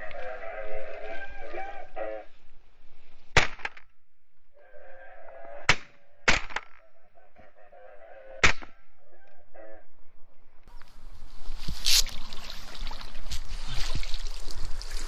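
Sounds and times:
geese honking: 0.0s - 2.4s, 4.6s - 5.8s, 6.9s - 10.0s
shotgun shots: 5.7s - 6.8s.

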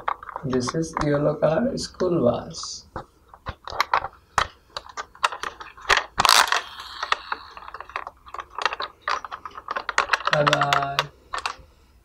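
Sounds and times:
plastic toy clicks and rattles: 3.5s - 11.6s.

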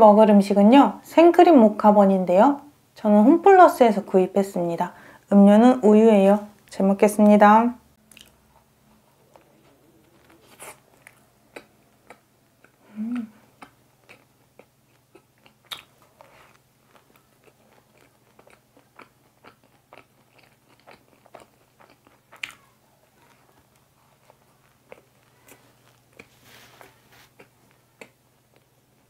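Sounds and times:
biting and chewing: 9.2s - 12.8s, 13.6s - 28.7s
person humming: 12.8s - 13.5s
wet mouth smacks and clicks: 15.7s - 15.9s.

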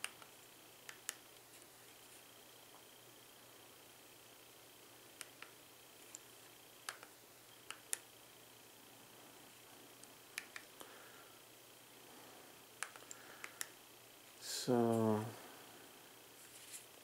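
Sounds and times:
remote control buttons clicking: 6.8s - 8.0s, 10.3s - 10.7s, 12.8s - 13.8s.

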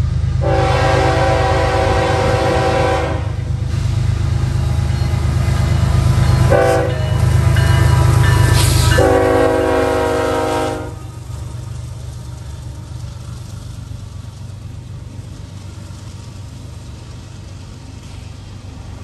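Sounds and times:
locomotive diesel engine rumbling: 0.0s - 19.0s
locomotive horn blasts: 0.4s - 3.5s, 6.5s - 7.4s, 8.9s - 11.1s.

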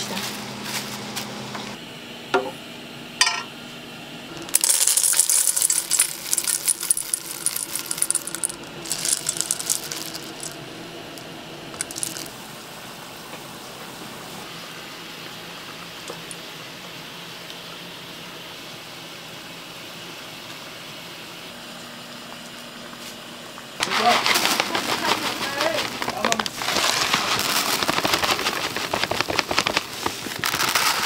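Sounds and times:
metal kitchenware clinking: 3.2s - 3.5s.

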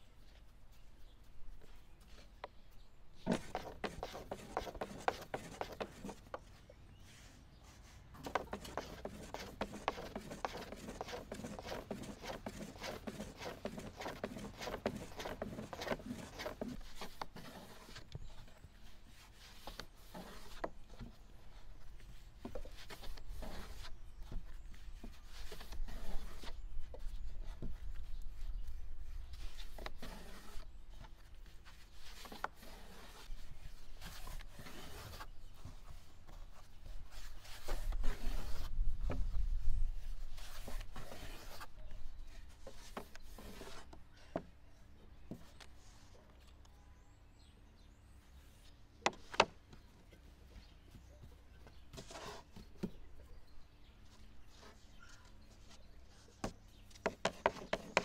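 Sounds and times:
rolling pin rolling over dough: 3.3s - 6.4s, 8.2s - 17.8s.

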